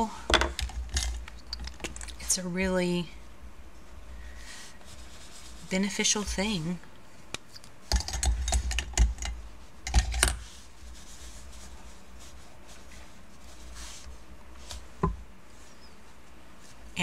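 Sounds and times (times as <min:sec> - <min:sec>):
crayons clicking and knocking in pot: 0:07.3 - 0:10.4.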